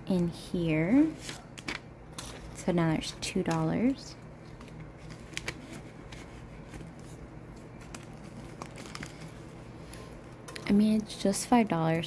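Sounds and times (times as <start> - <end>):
low room hum: 0.0 - 12.0
paper and plastic crinkling: 3.4 - 10.6.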